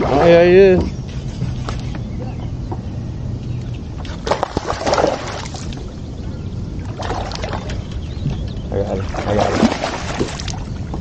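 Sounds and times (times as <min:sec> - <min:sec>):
fish thrashing and splashing: 0:04.0 - 0:05.9, 0:06.8 - 0:08.1, 0:09.0 - 0:10.8.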